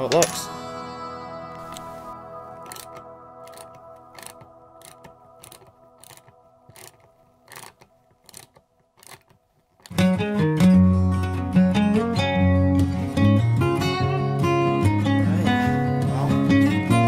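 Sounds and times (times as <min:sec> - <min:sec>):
faint background music: 0:00.0 - 0:09.3
acoustic guitar music: 0:00.0 - 0:17.0
screwdriver clicking: 0:01.6 - 0:01.9, 0:02.6 - 0:10.0.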